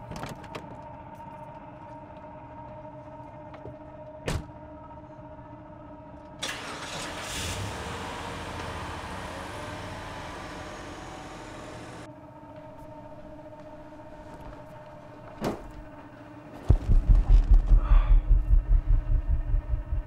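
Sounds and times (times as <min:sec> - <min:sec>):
car engine starting and running: 0:06.4 - 0:12.1.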